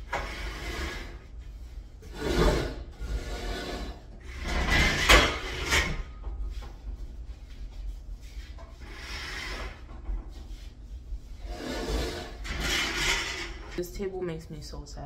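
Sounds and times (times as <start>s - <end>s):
furniture scraping across floor: 0.0s - 1.3s, 2.0s - 6.0s, 8.3s - 13.8s.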